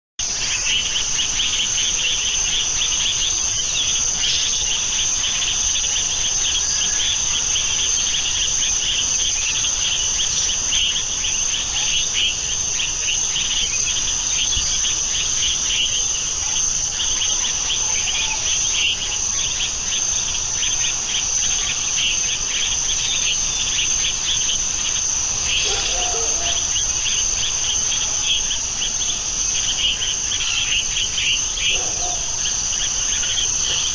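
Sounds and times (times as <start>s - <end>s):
insects whining: 0.2s - 33.9s
insect pulsing trill: 12.2s - 33.9s.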